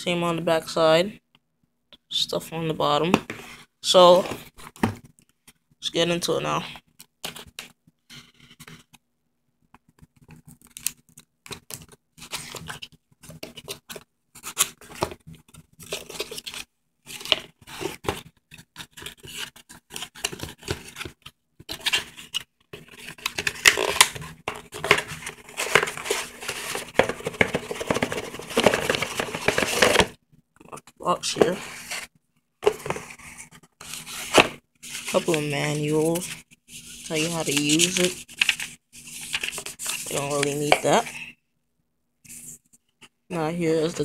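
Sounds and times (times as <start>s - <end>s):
cardboard packaging rustling: 10.2s - 30.2s, 31.3s - 41.2s.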